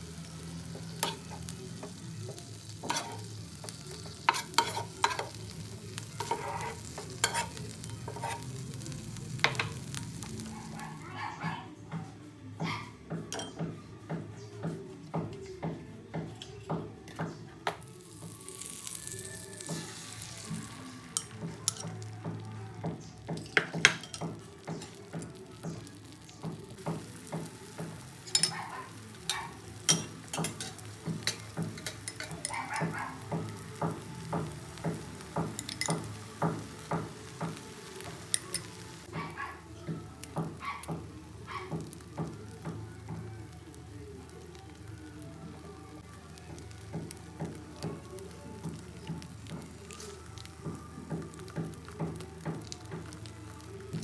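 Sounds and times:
background music with steady beat: 0:00.0 - 0:54.0
eggs sizzling in a frying pan: 0:00.0 - 0:54.0
utensil scraping a pan: 0:02.8 - 0:05.4, 0:06.1 - 0:08.6.

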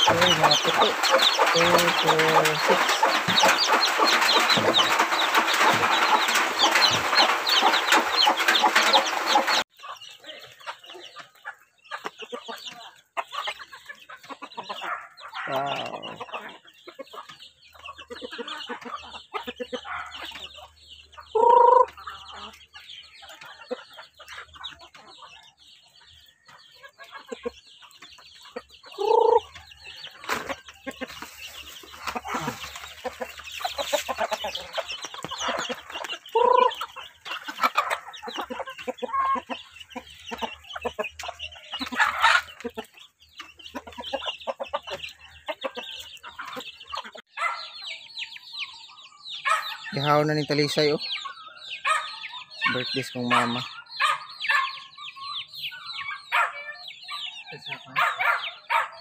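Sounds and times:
chicks peeping: 0:00.0 - 0:59.0
hens clucking: 0:00.0 - 0:59.0.

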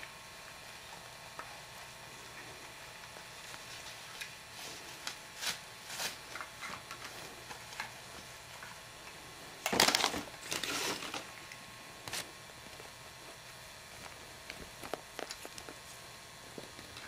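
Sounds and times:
plastic bag crinkling: 0:09.6 - 0:11.4.

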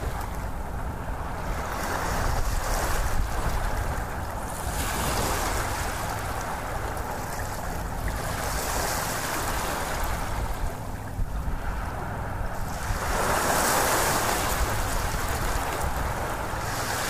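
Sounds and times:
water rushing: 0:00.0 - 0:00.7.

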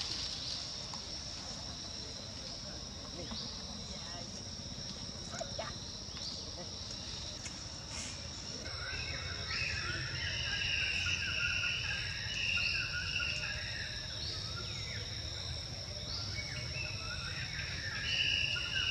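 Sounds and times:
insect chirping calls: 0:00.0 - 0:18.9
insects droning: 0:00.0 - 0:18.9.

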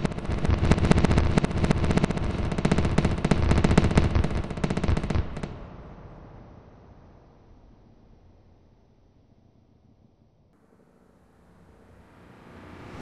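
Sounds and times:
firework crackling pops: 0:00.0 - 0:05.7
rumble: 0:00.0 - 0:13.0.

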